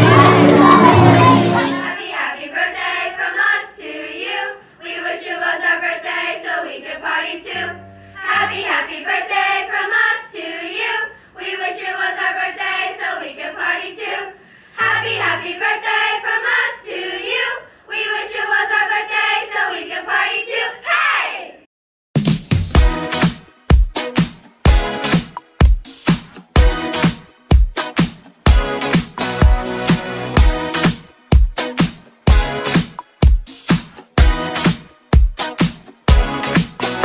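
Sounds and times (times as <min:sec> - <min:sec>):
girls choir singing: 0:00.0 - 0:21.5.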